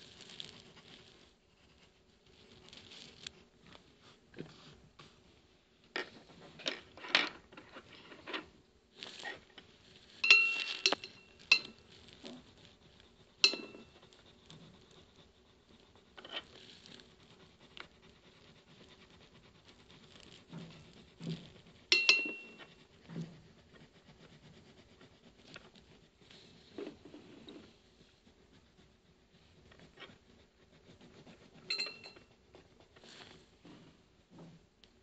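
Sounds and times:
pencil scratching on paper: 0:00.0 - 0:05.2, 0:09.1 - 0:34.1
sharp ringing clinks: 0:10.2 - 0:11.8, 0:21.9 - 0:22.6, 0:31.7 - 0:32.2.

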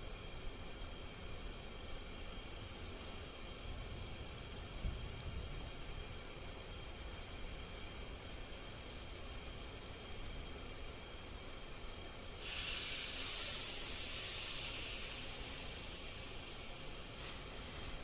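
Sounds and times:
high-pitched hiss: 0:12.4 - 0:18.0.

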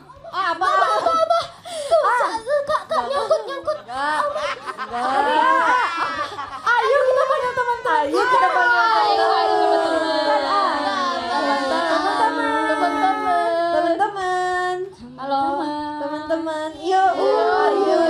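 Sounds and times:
women singing: 0:08.0 - 0:18.0.

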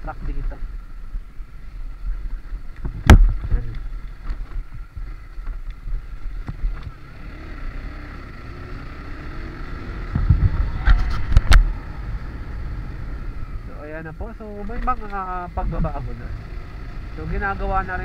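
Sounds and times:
motorcycle engine and wind rumble: 0:00.0 - 0:18.0.

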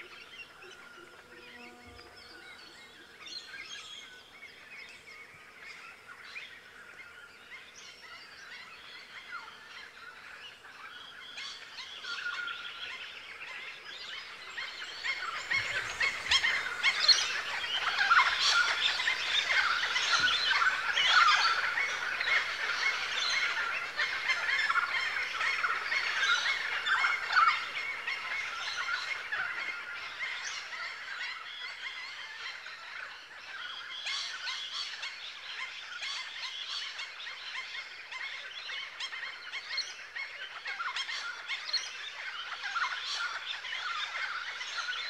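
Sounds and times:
flock of birds squawking: 0:00.0 - 0:45.0.

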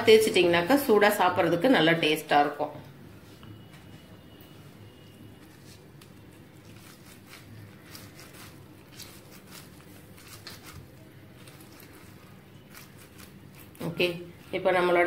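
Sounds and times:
lemon rubbing over corn cob: 0:05.4 - 0:14.4.

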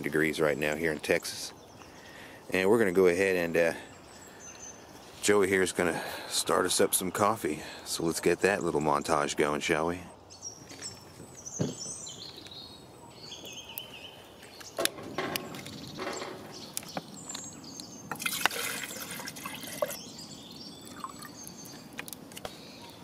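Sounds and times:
water pouring into a metal pot: 0:18.1 - 0:20.0.

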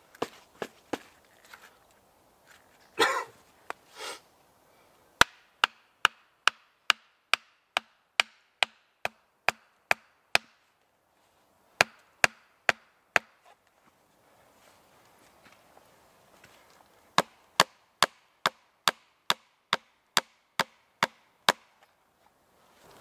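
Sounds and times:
hatchet knocking on wooden stake: 0:05.2 - 0:10.6, 0:11.8 - 0:13.4, 0:17.2 - 0:21.7.

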